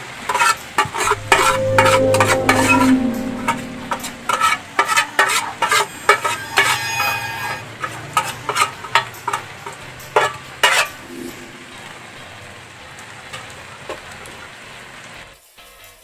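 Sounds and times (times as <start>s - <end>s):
metallic ring: 1.1s - 4.6s.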